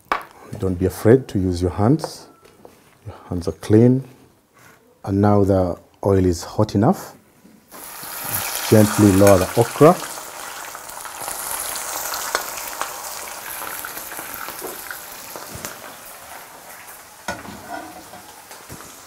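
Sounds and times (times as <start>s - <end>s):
food sizzling in oil: 7.7s - 19.0s.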